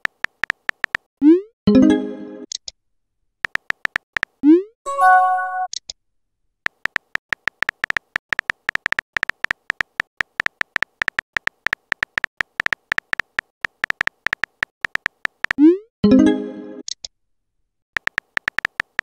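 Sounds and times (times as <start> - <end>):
phone keyboard typing clicks: 0.0 - 1.1, 3.4 - 4.4, 6.7 - 15.6, 18.0 - 19.0.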